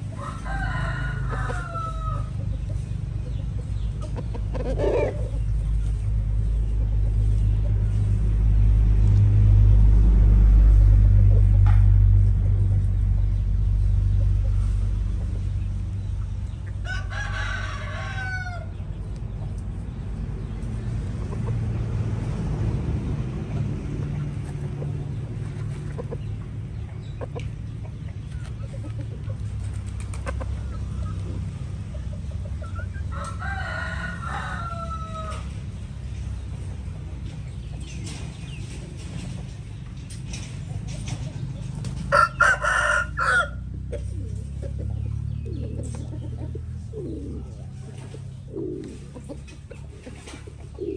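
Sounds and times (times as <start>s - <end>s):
steady low rumble: 0.0s - 18.0s, 18.6s - 33.4s
rooster crowing: 0.1s - 2.4s, 16.8s - 18.7s, 33.1s - 35.5s, 42.1s - 43.7s.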